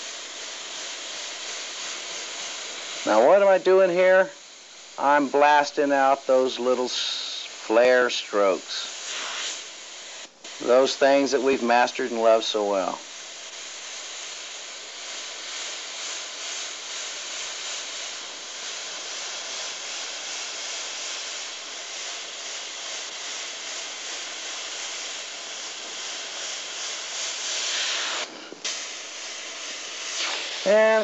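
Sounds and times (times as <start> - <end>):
airbrush air hiss: 0.0 - 31.0.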